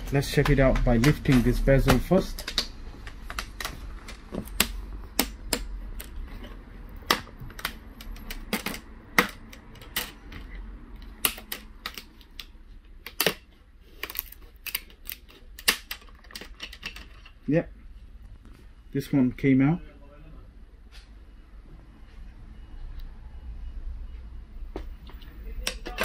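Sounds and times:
plastic clicks and snaps: 0.4 - 6.2.

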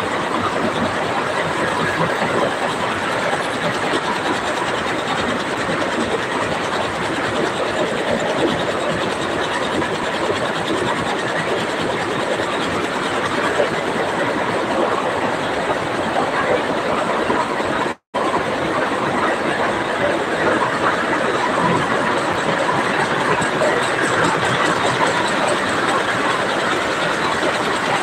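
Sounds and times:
power loom clattering: 19.4 - 28.0.

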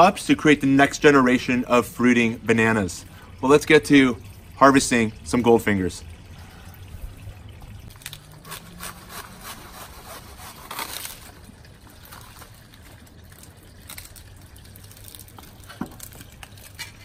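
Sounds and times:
cutting tool crackling and snapping: 7.9 - 11.4.

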